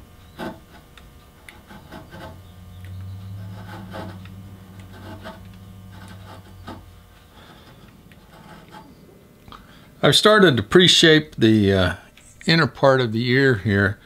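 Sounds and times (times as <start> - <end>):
steady low hum: 0.0 - 14.0
gouge scraping wood: 0.3 - 9.1.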